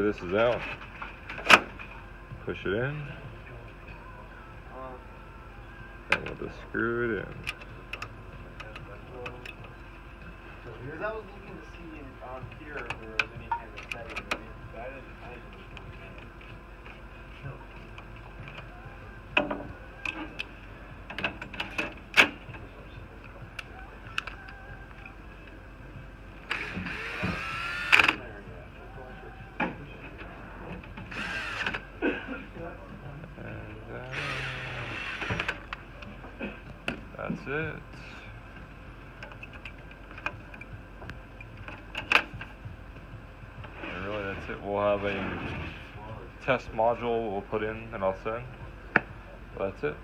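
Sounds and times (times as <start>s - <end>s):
clicks and knocks of metal handling: 39.2s - 40.7s.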